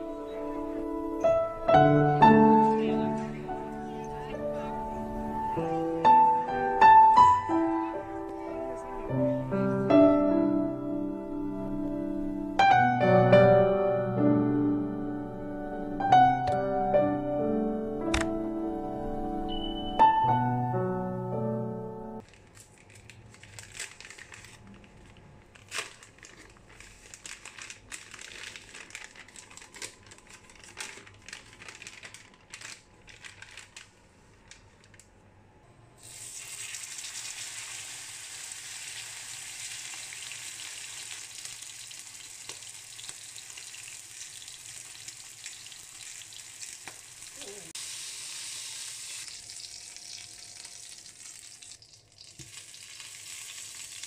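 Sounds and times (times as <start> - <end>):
steak sizzling in a pan: 36.1 - 54.0.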